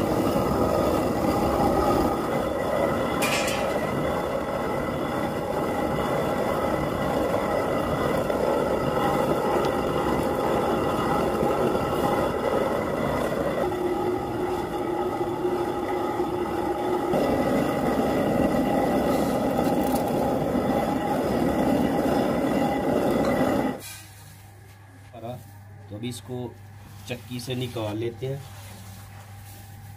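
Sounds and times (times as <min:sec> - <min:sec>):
stone mill grinding grain: 0:00.0 - 0:23.8.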